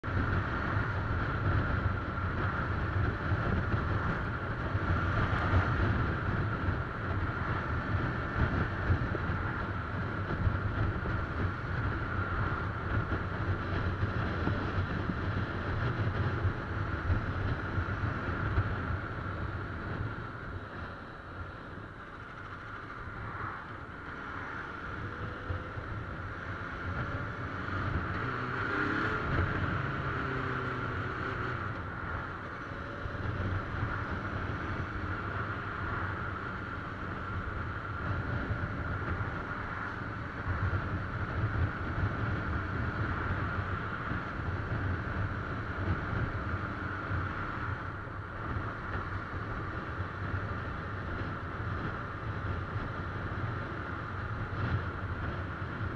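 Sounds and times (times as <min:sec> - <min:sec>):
motorcycle engine drone: 0:00.0 - 0:55.9
wind buffeting microphone: 0:00.0 - 0:55.9.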